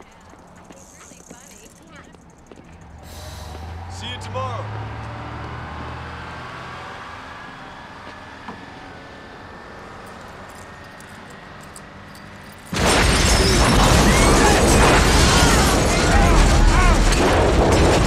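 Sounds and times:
street traffic: 0.0s - 18.0s
bus explosion blast: 12.7s - 18.0s
fireball burning: 12.7s - 18.0s.

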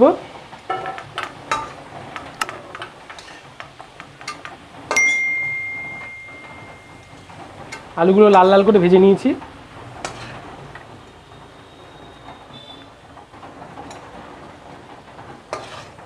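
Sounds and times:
metal spoon scraping and tapping: 0.7s - 5.3s, 10.0s - 10.4s, 15.5s - 16.0s.

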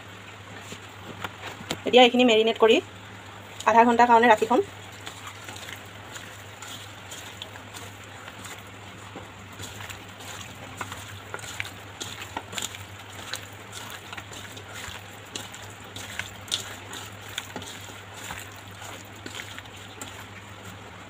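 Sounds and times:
steady low hum: 0.0s - 21.0s
hand squelching chicken in marinade: 4.4s - 21.0s.

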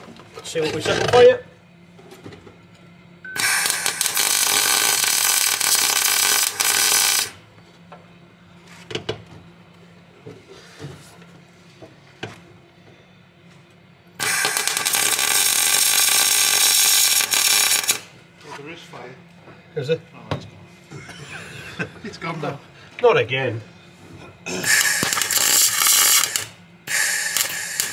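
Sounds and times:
welding noise: 3.3s - 7.4s, 14.2s - 18.2s, 24.5s - 27.9s.

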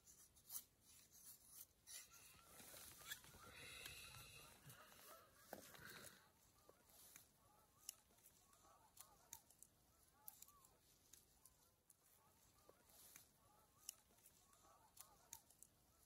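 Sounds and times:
faint wavering calls: 1.9s - 16.0s
knife shaving wood clicks: 6.8s - 16.0s.

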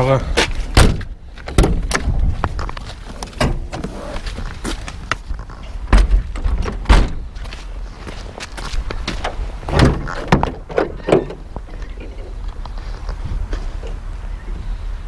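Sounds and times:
wind rumble on microphone: 0.4s - 15.0s
knocks and thumps: 5.8s - 7.2s.

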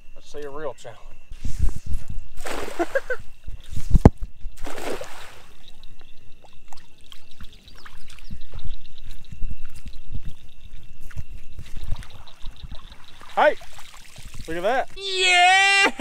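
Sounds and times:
net splashing into water: 2.4s - 3.2s, 4.6s - 5.6s, 13.2s - 14.6s.

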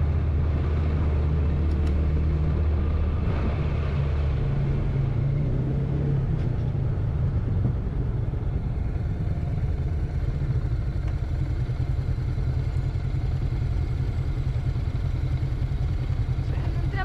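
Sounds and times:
motorcycle engine running: 6.2s - 17.0s.

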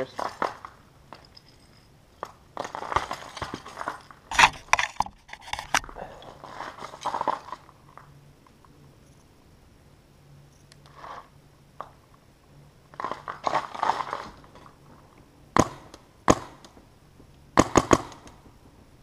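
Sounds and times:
camera handling noise: 4.3s - 5.9s.

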